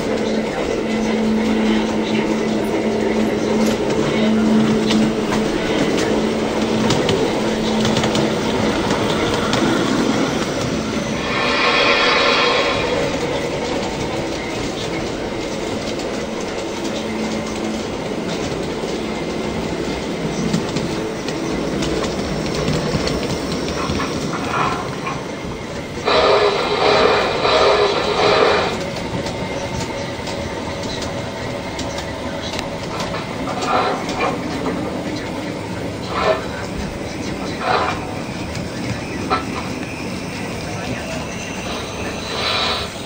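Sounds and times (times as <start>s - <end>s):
model train rolling on track: 0.0s - 43.0s
wheels clicking over rail joints: 28.7s - 40.5s.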